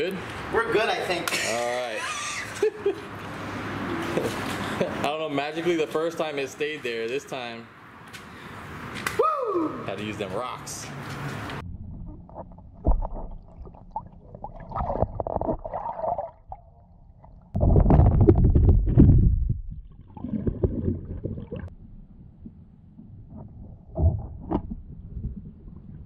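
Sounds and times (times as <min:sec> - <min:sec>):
low underwater rumbling: 0:11.6 - 0:26.0
water gurgling against case: 0:11.9 - 0:21.7.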